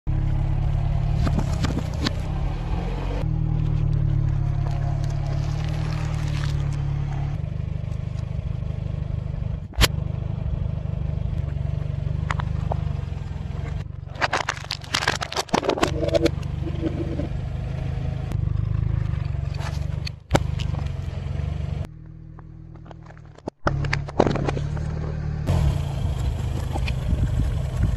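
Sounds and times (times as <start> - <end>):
car engine idling: 0.1 - 27.9
tyre crushing plastic: 14.1 - 16.2.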